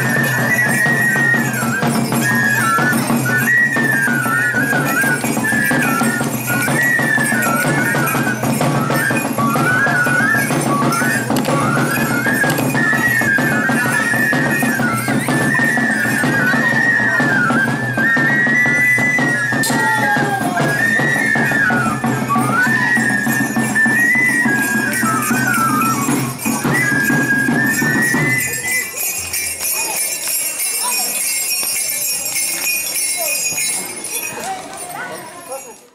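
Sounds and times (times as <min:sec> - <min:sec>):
drum beat: 0:00.0 - 0:28.3
flute melody: 0:00.0 - 0:35.1
crowd noise: 0:00.0 - 0:35.9
small bells jingling: 0:00.0 - 0:35.9.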